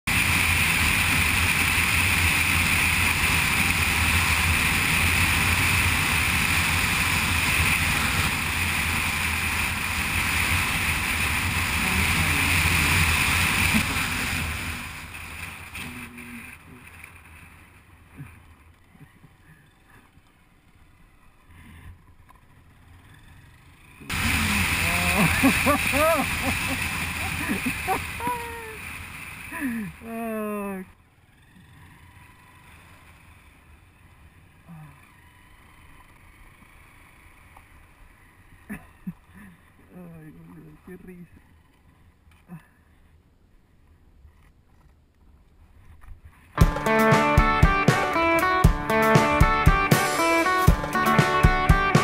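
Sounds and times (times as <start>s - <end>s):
motorcycle engine running: 0.1s - 19.9s, 20.8s - 30.4s, 46.6s - 52.0s.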